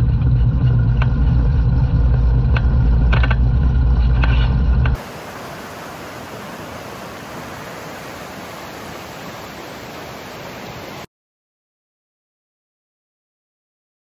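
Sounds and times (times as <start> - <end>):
river rushing over rapids: 5.0 - 11.1.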